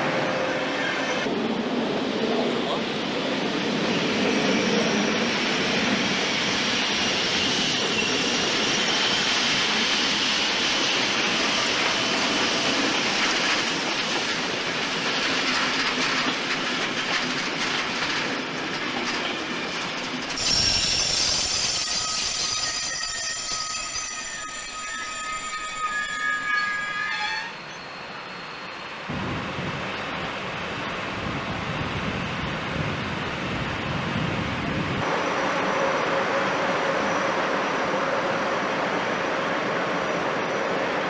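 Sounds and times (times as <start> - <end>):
train wheels on rails: 0.0 - 41.0
faint high wheel squeal: 20.4 - 29.0.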